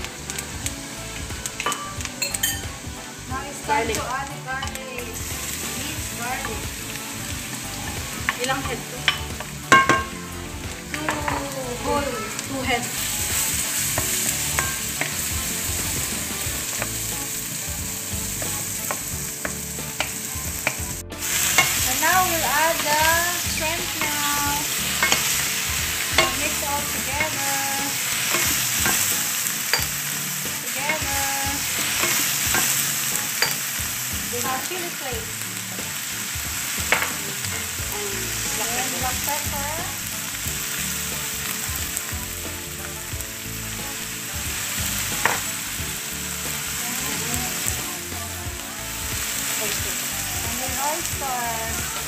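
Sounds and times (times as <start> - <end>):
shrimp sizzling in a pan: 0.0 - 52.0
spatulas knocking on pan: 1.5 - 2.7, 7.8 - 10.2, 12.9 - 17.1, 18.4 - 33.9, 36.4 - 37.2, 45.2 - 45.5.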